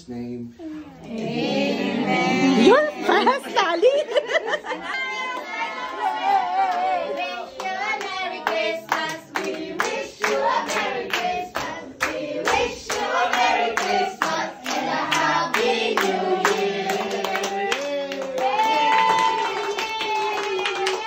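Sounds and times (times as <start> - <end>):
group of people singing: 1.0 - 19.8
rhythmic clapping: 5.2 - 21.0.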